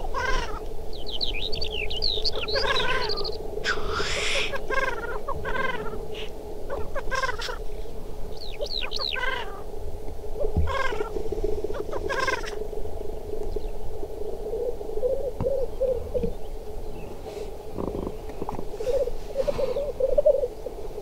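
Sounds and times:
grouse bubbling song: 0.2 - 7.6, 8.3 - 9.6, 10.4 - 12.6
short high bird calls: 0.2 - 7.6.

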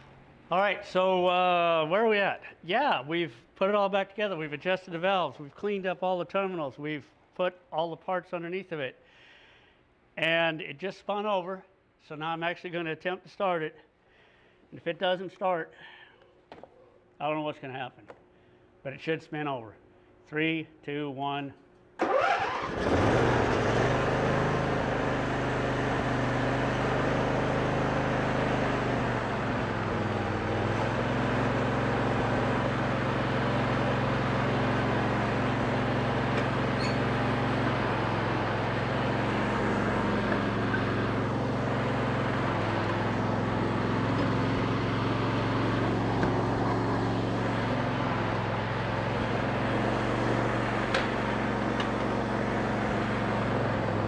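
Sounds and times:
electric starter cranking: 22.0 - 25.4, 27.0 - 54.0
lawn tractor engine running: 22.0 - 54.0.

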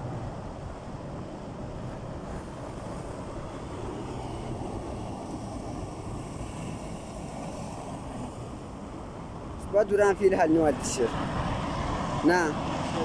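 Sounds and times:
flood torrent rushing: 9.4 - 13.0.

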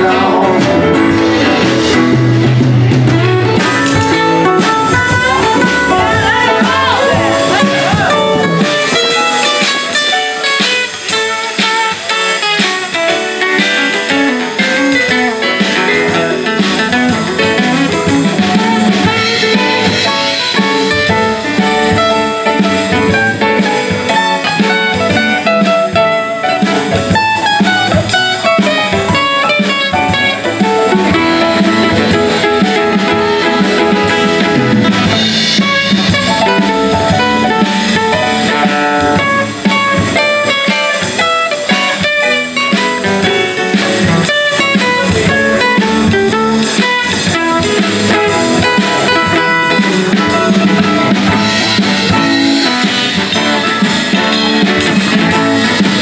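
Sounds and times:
acoustic guitar strumming: 0.0 - 56.0
drum kit: 0.0 - 56.0
saxophone: 18.1 - 20.9.

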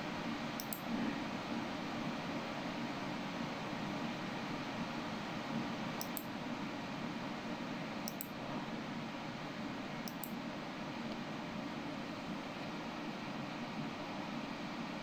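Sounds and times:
faint high ticks: 0.6 - 0.8, 6.0 - 6.3, 8.1 - 8.3, 10.0 - 10.4.

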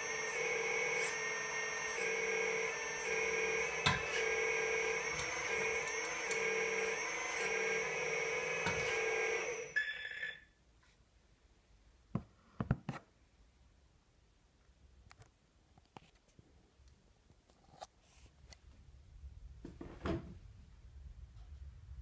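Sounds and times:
toy excavator motor whining: 0.0 - 10.4.

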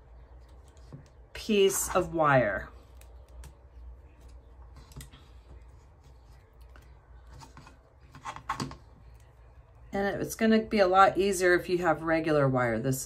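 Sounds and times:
wire being twisted by hand: 2.8 - 9.3.

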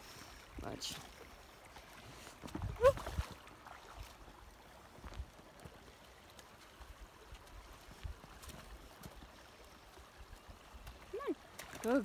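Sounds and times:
footsteps in wet snow and mud: 1.9 - 12.0.

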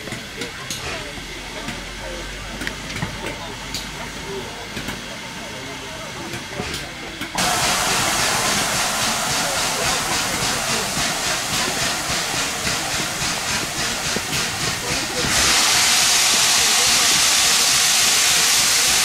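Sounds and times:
loud rush of steam: 7.4 - 19.0
pulsing steam hiss: 7.4 - 19.0.

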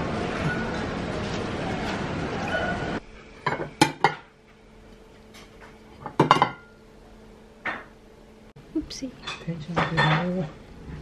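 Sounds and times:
metal spoon clinking on pan and plates: 9.2 - 10.5.

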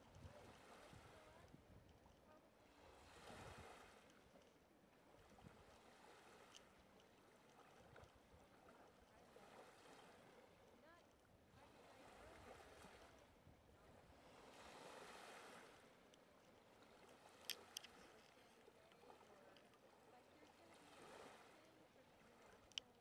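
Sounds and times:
small waves lapping on shore: 0.0 - 23.0.

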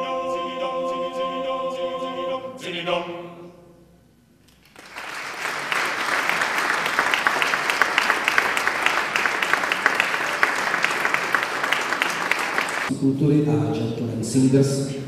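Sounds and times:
male choir singing chord: 0.0 - 3.7
audience applause: 4.6 - 12.9.

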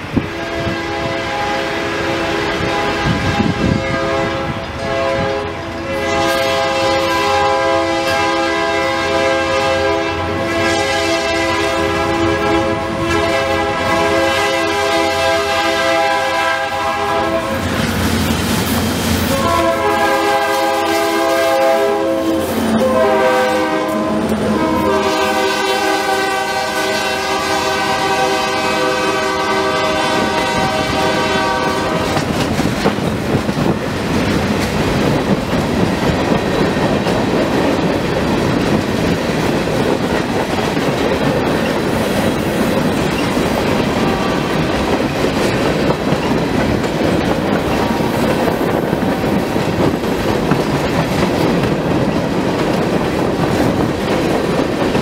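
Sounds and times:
locomotive air horn: 0.2 - 17.8, 19.2 - 32.3, 43.8 - 44.7
wheels clicking over rail joints: 32.0 - 43.9, 44.6 - 55.0.

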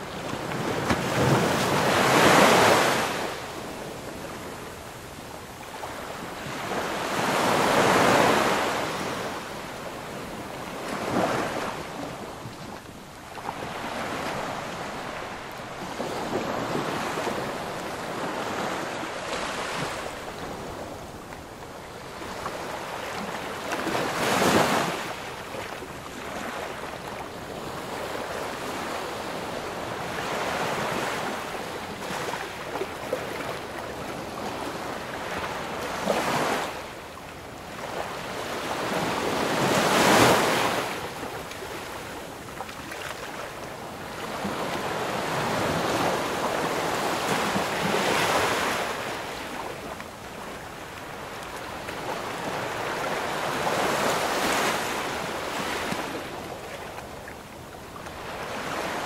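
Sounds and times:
ocean waves breaking: 0.0 - 4.6, 5.8 - 21.5, 37.8 - 59.0.

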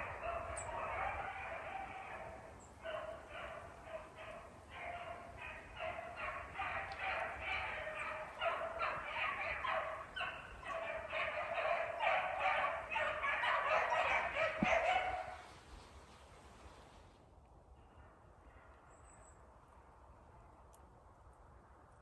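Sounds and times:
hounds baying: 0.0 - 15.4.

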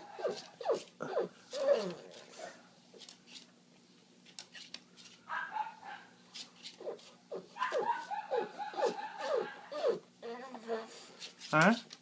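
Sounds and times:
dog whining and whimpering: 0.0 - 2.5, 6.7 - 11.1.

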